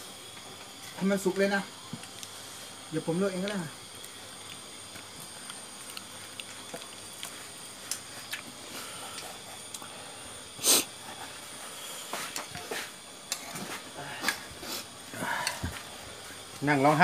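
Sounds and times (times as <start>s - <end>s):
faint high whine: 0.0s - 17.0s
loud burst of hissing: 10.0s - 11.0s, 14.2s - 16.0s.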